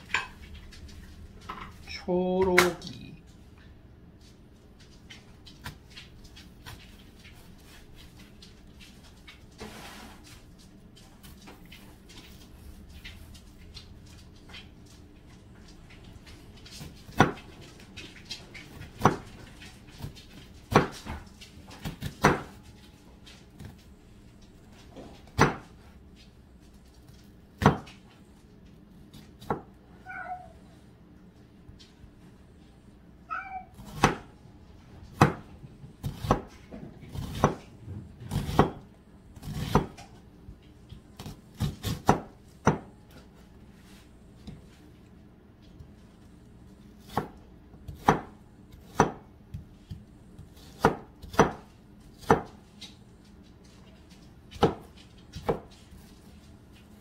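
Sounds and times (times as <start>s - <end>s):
knife chopping on plastic board: 17.1s - 17.4s, 18.8s - 19.3s, 20.7s - 21.2s, 21.8s - 22.6s, 25.2s - 25.8s, 27.6s - 28.0s, 29.1s - 29.8s, 33.8s - 34.3s, 35.1s - 40.1s, 40.9s - 43.2s, 47.0s - 52.6s, 54.6s - 55.7s
cat meowing: 30.0s - 30.7s, 33.3s - 33.8s.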